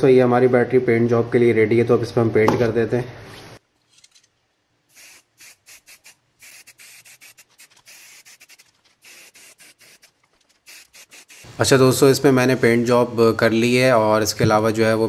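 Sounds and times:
aerosol spray can hissing: 0:04.9 - 0:11.7.

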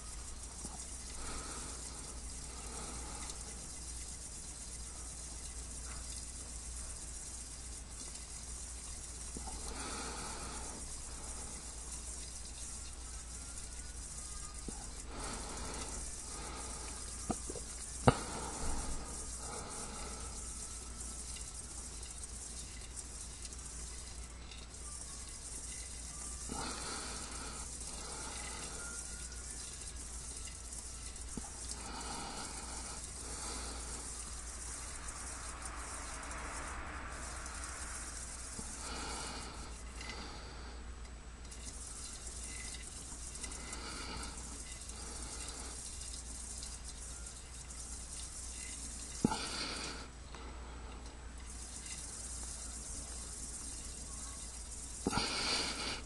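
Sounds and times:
low hum and hiss: 0:00.0 - 0:56.0.

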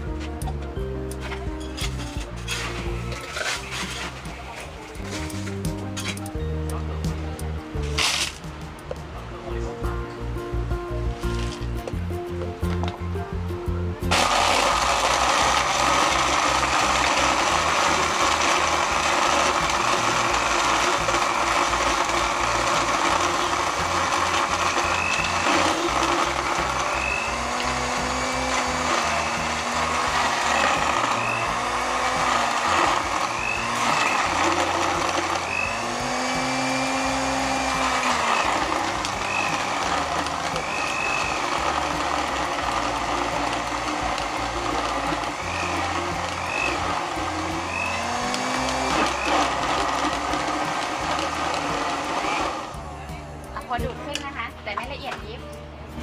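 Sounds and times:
background music with a beat: 0:00.0 - 0:27.6, 0:37.7 - 0:56.0
blender running at high speed: 0:14.1 - 0:53.0.

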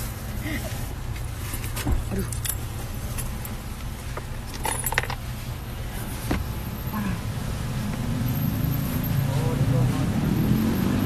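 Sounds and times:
light metallic jingles: 0:01.5 - 0:03.7, 0:04.4 - 0:05.4.

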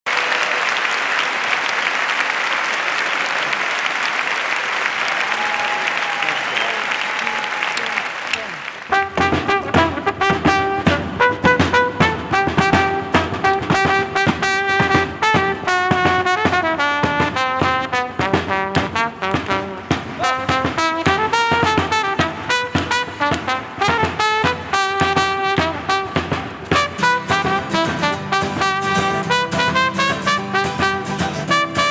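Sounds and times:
applause: 0:00.0 - 0:09.5, 0:18.7 - 0:20.2
trumpet melody: 0:08.8 - 0:31.9
drum beat: 0:08.9 - 0:31.9
strummed acoustic guitar: 0:20.0 - 0:31.9.

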